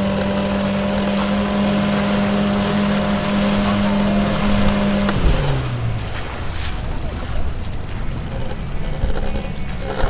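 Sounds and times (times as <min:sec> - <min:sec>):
boat engine humming: 0:00.0 - 0:10.0
wind and water rushing: 0:00.0 - 0:10.0.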